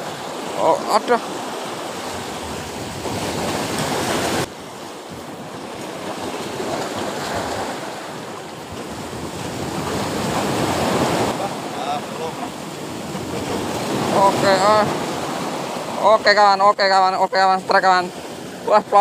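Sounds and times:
sea waves breaking on concrete: 0:00.0 - 0:16.2
wind on microphone: 0:01.7 - 0:15.8.

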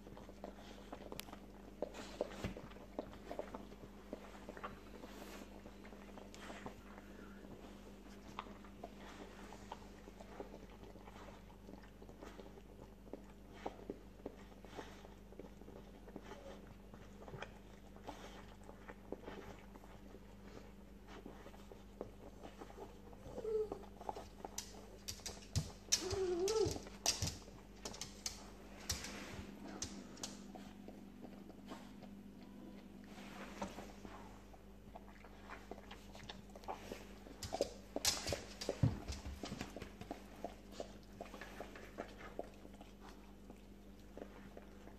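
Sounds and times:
steady low hum: 0:00.0 - 0:44.9
dog whimpering: 0:23.1 - 0:24.2, 0:26.0 - 0:26.9
soft clicks and rustles: 0:24.0 - 0:34.5.

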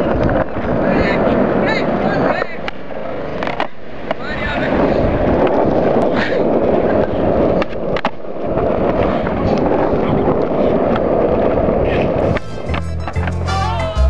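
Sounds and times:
skateboard clacks: 0:00.0 - 0:13.4
skateboard wheels rolling on asphalt: 0:00.0 - 0:13.4
music: 0:12.2 - 0:14.0.

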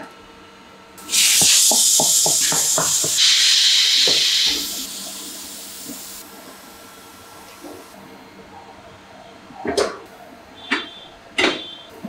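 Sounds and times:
compressed air hissing: 0:01.0 - 0:07.9.

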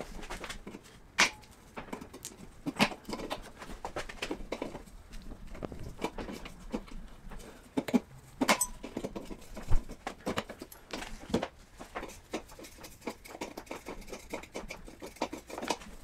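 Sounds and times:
knocks and scrapes: 0:00.0 - 0:16.0
metallic ring: 0:08.5 - 0:08.8.

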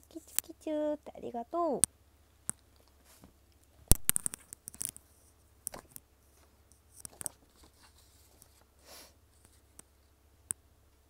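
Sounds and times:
sharp clicks and crackles: 0:01.8 - 0:06.0.

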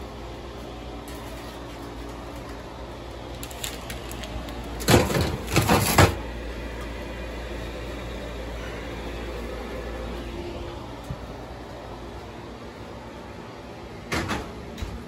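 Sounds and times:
steady low hum: 0:00.0 - 0:15.0
baking sheet scraping on oven rack: 0:04.9 - 0:06.2.

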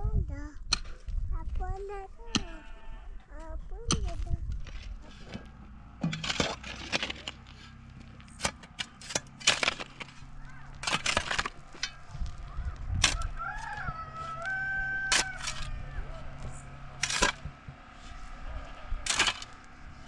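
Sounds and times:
rooster crowing: 0:12.4 - 0:16.8.

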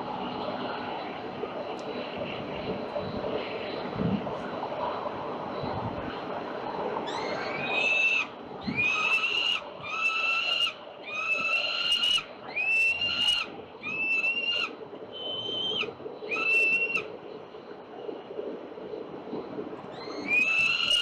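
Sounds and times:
falcon wailing calls: 0:07.1 - 0:17.1, 0:19.9 - 0:21.0.

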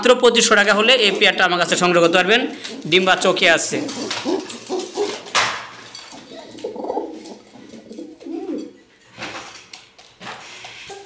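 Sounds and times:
pigeons cooing: 0:00.5 - 0:05.4, 0:06.1 - 0:08.9.

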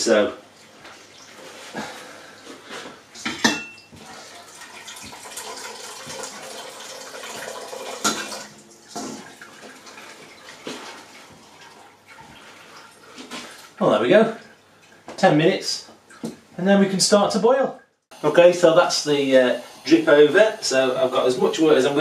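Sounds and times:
liquid trickling into a pot: 0:03.8 - 0:13.8.

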